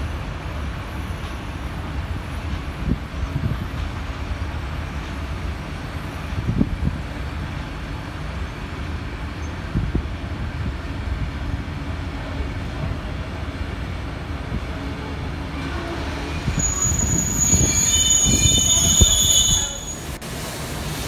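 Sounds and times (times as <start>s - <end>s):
train carriages rumbling past: 0.0s - 21.0s.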